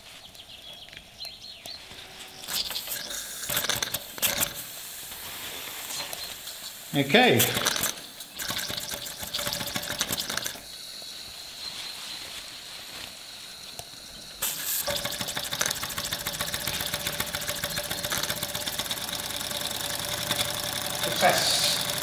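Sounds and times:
steam engine exhaust beats: 1.9s - 22.0s
steam hissing: 1.9s - 22.0s
steam engine chuffing: 2.4s - 5.0s, 6.3s - 11.0s, 14.4s - 22.0s.

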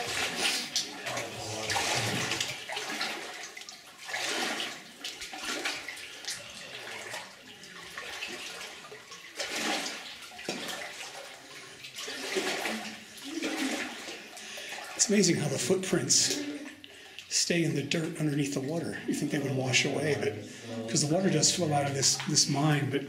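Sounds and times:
feet wading through shallow water: 0.0s - 15.4s.

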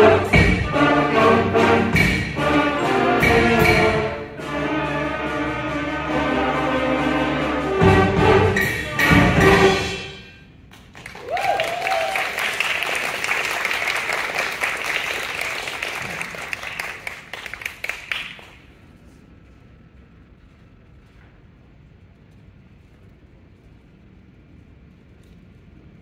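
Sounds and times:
concert band playing: 0.0s - 10.2s
audience applauding: 10.7s - 18.7s
person cheering: 11.2s - 12.5s.

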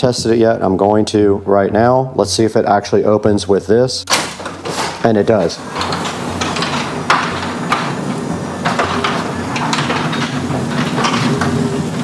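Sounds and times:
garage door clicks and rattles: 4.1s - 12.0s
garage door opener motor hum: 4.1s - 12.0s.

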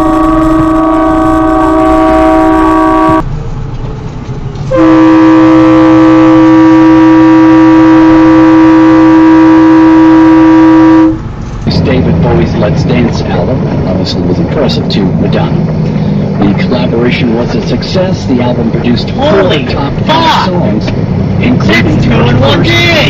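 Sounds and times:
truck air horn blast: 0.0s - 3.3s, 4.7s - 11.2s
engine and road noise: 0.0s - 23.0s.

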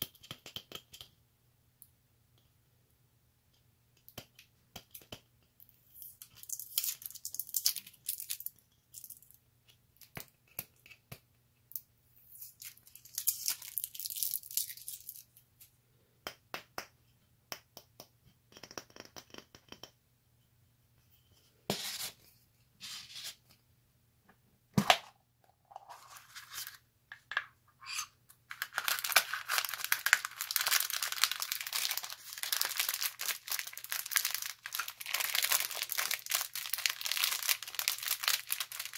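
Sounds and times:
plastic candy wrapper crinkling: 6.0s - 9.4s, 12.4s - 15.4s, 28.5s - 38.9s
ribbon rustling: 28.5s - 38.9s.

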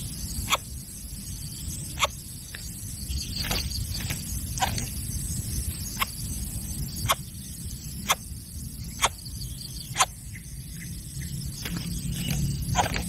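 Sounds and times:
steady low rumble: 0.0s - 13.0s
bird chick squeaking: 9.8s - 10.2s, 11.6s - 13.0s.

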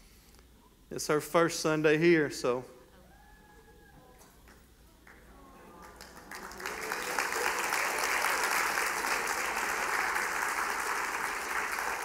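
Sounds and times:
congregation applauding: 4.5s - 12.0s.

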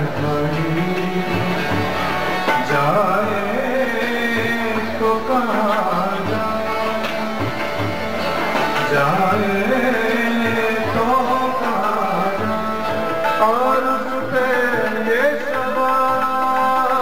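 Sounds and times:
held instrument notes: 0.0s - 17.0s
tabla: 0.0s - 17.0s.

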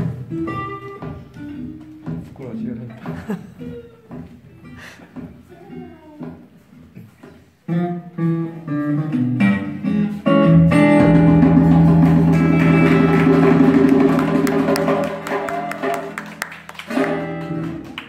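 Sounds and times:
acoustic guitar picking notes: 0.0s - 2.3s, 3.6s - 16.2s
band playing: 0.0s - 2.6s, 7.6s - 18.0s
bass guitar: 0.0s - 18.0s.

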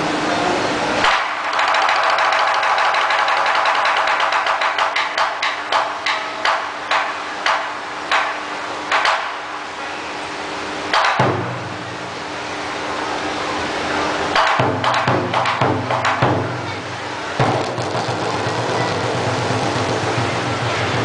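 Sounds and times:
taiko drum boom: 11.0s - 11.8s, 14.4s - 16.8s, 17.4s - 21.0s.

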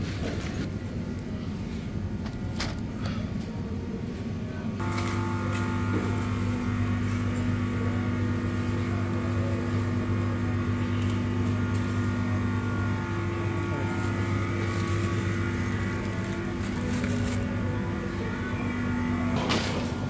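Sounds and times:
engine humming: 4.8s - 20.0s.

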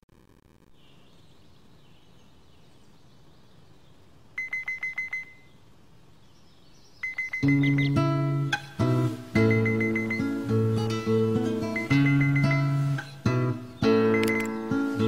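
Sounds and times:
phone alarm short high beeps: 4.4s - 5.5s, 7.0s - 8.0s, 9.4s - 11.1s, 11.7s - 13.1s, 14.1s - 14.5s
acoustic guitar music: 7.4s - 15.0s.

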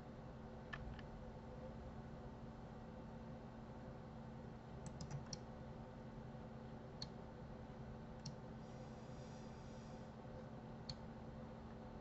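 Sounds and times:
steady low hum: 0.0s - 12.0s
computer mouse click: 4.8s - 5.4s, 8.2s - 8.4s.

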